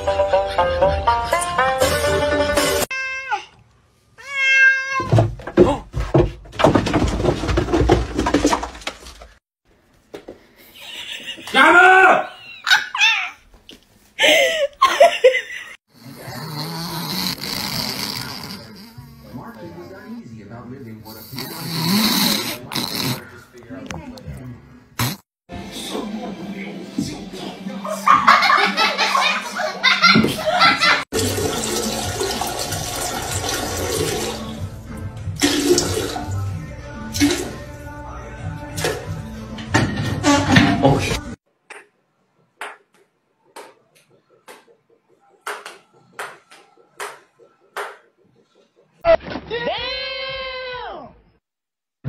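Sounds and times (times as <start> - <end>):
dog snoring: 16.0 - 19.6, 21.0 - 23.4
toilet flushing: 31.1 - 34.8, 35.4 - 36.4.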